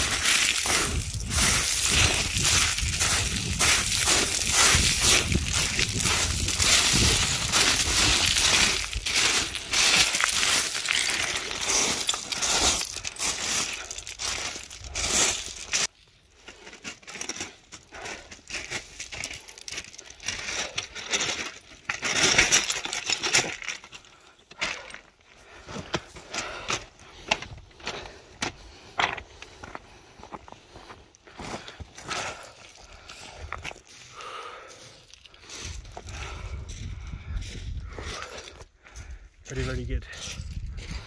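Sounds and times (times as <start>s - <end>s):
small stones clinking: 0.0s - 15.9s, 16.8s - 25.0s
boots crunching over scree: 0.0s - 41.0s.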